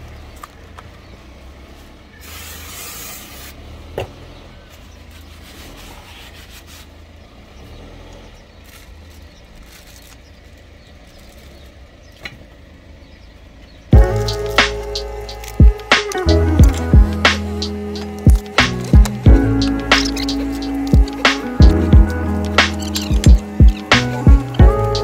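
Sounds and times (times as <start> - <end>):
aerosol spray hiss: 2.2 - 3.5
paper rag rubbing disc: 5.1 - 7.0
low steady rumble: 8.4 - 25.0.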